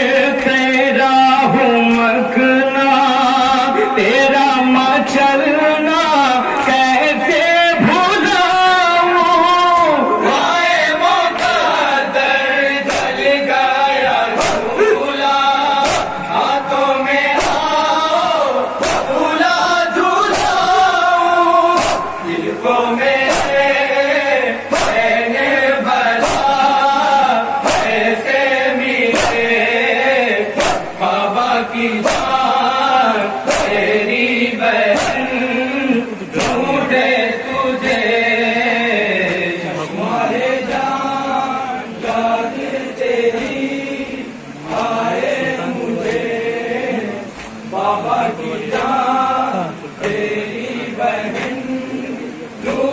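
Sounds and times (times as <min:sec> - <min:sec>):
men chanting in unison: 0:00.0 - 0:52.9
rhythmic chest-beating slaps: 0:01.4 - 0:02.2, 0:05.2 - 0:52.9.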